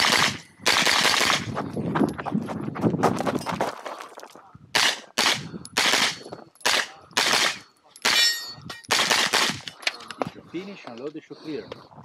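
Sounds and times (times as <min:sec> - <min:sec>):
carbine gunshots: 0:00.0 - 0:01.5, 0:04.8 - 0:08.3, 0:08.9 - 0:09.7.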